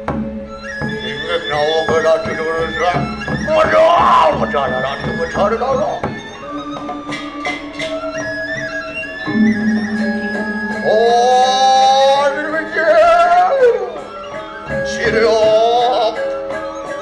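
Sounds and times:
gamelan music: 0.0s - 17.0s
man singing ornamented phrases: 1.0s - 5.8s, 10.8s - 14.0s, 14.8s - 16.4s.

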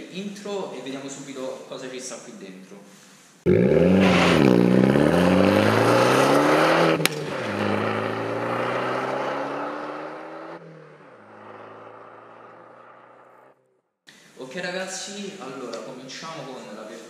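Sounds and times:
car engine accelerating: 3.5s - 13.6s.

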